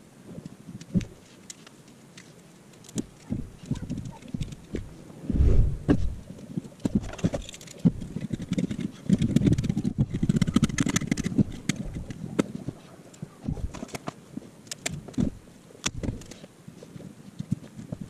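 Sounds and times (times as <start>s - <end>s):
heavy thump: 5.3s - 6.2s.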